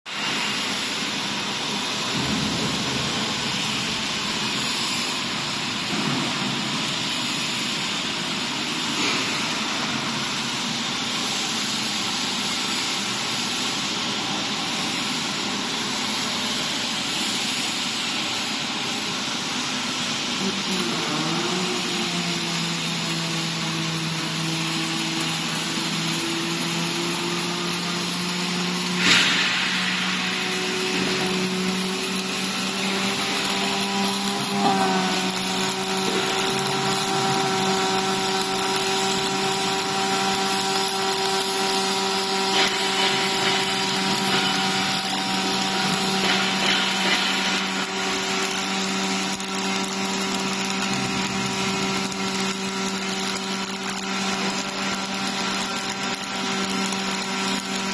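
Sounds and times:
welding arc hissing and crackling: 0:00.0 - 0:57.9
machine hum: 0:20.4 - 0:57.9
sharp crack: 0:28.9 - 0:34.6.

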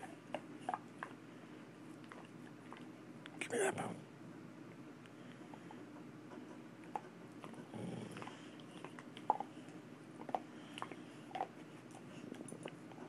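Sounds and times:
dog growling: 0:07.4 - 0:09.5.

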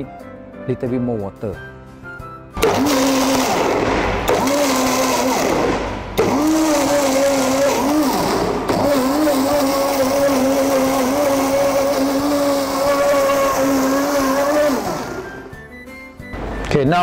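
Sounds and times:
blender motor humming: 0:02.6 - 0:15.7.

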